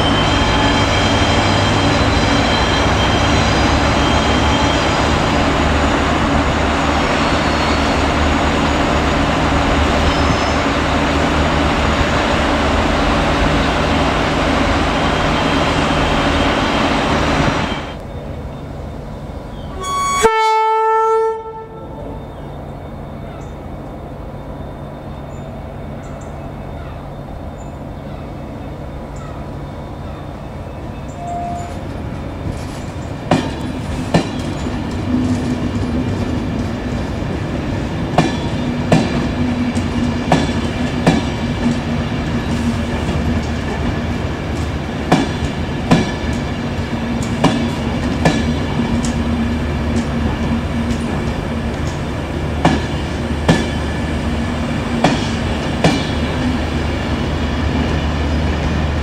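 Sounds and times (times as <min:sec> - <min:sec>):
train rumble: 0:00.0 - 0:59.0
train wheels clacking over rail joints: 0:31.7 - 0:37.2, 0:37.8 - 0:56.6.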